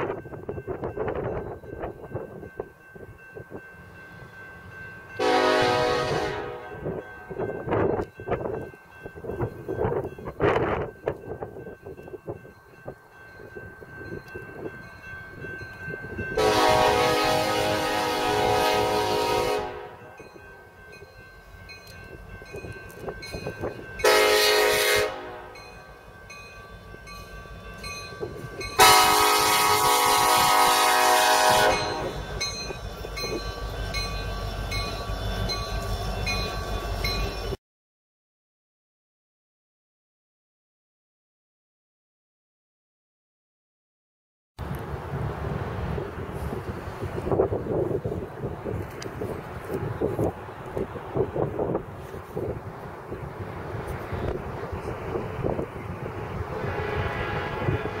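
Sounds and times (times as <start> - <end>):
diesel locomotive approaching: 0.0 - 37.6, 44.6 - 58.0
freight train rumbling: 0.0 - 37.6, 44.6 - 58.0
grade-crossing bell ringing: 0.0 - 37.6
locomotive horn blowing: 5.2 - 7.4, 16.4 - 20.2, 24.0 - 25.7, 28.8 - 32.4, 56.4 - 58.0.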